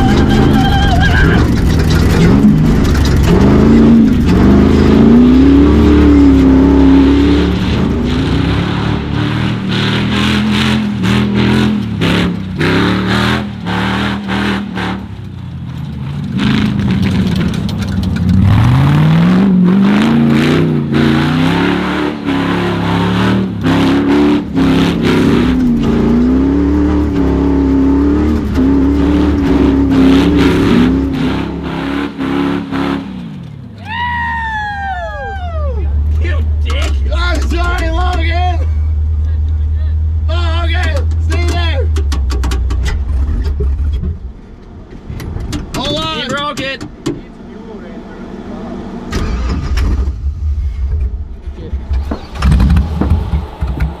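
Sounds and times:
truck engine revving hard: 0.0s - 15.2s, 16.2s - 17.6s, 18.3s - 33.8s, 47.9s - 50.7s.

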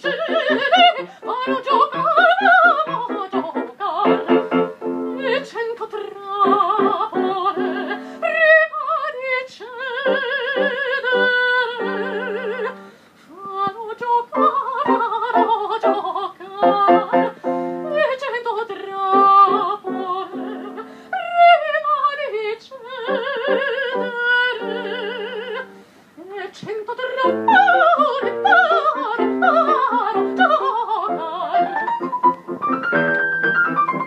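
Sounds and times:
piano accompaniment: 0.0s - 5.5s, 6.4s - 8.2s, 14.4s - 18.2s, 27.2s - 34.0s
soprano singing opera: 0.0s - 32.1s.

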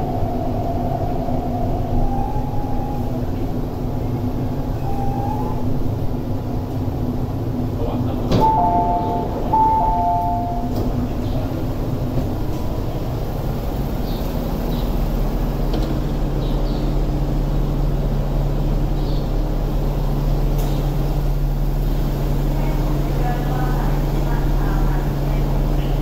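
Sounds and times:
train rumble and hum: 0.0s - 26.0s
two-tone door chime beeps: 8.4s - 11.0s.

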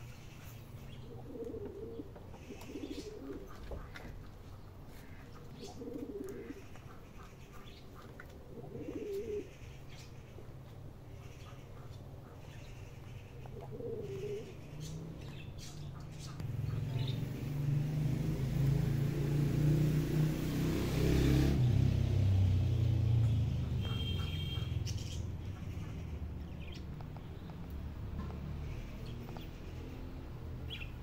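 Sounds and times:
vehicle engine rumbling past: 13.4s - 31.0s
bird chirps: 23.7s - 27.6s.

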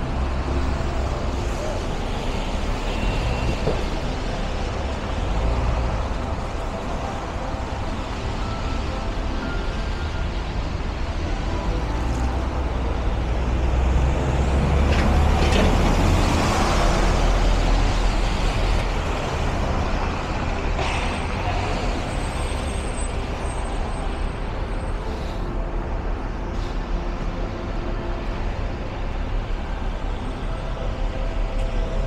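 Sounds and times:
engines rumbling: 0.0s - 32.0s
tyres hissing on wet road: 0.1s - 6.5s, 25.0s - 25.7s.

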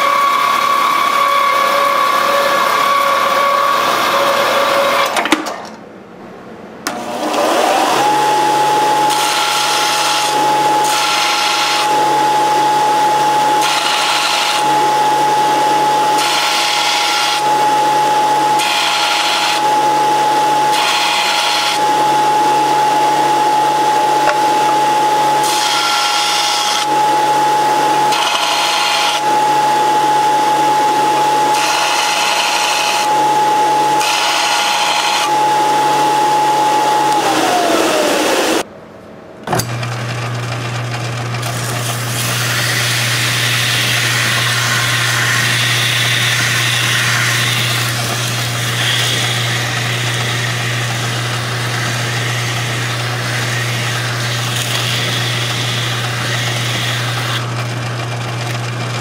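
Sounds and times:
belt sander whining: 6.9s - 38.7s, 39.5s - 59.0s
metal rod grinding: 41.4s - 59.0s.

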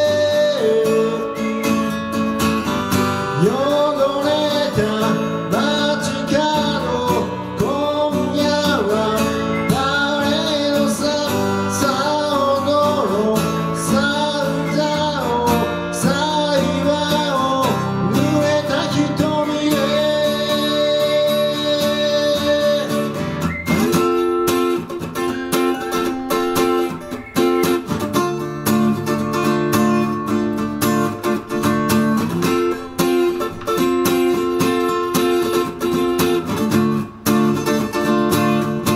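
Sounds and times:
man singing: 0.0s - 2.1s, 2.9s - 24.7s
acoustic guitar strumming: 0.0s - 38.9s.

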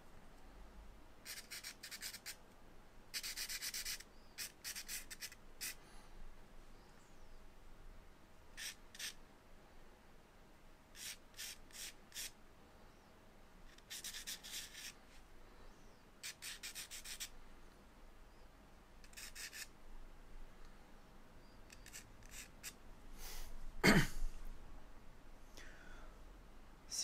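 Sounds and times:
charcoal scratching on paper: 1.2s - 2.4s, 3.1s - 5.8s, 8.6s - 9.2s, 10.9s - 12.4s, 13.7s - 15.0s, 16.2s - 17.3s, 19.0s - 19.7s, 21.7s - 22.8s.

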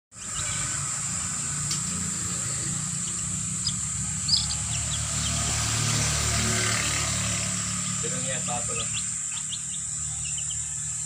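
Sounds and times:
chick peeping: 0.2s - 1.4s, 2.7s - 6.0s, 7.7s - 11.0s.

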